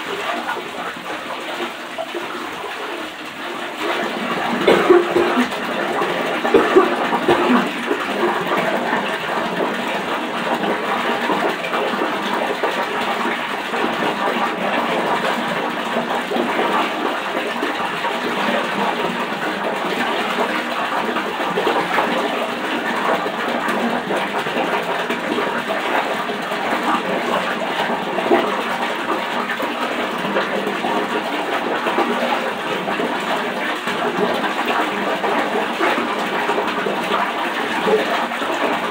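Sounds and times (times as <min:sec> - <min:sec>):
water running: 0:00.0 - 0:38.9.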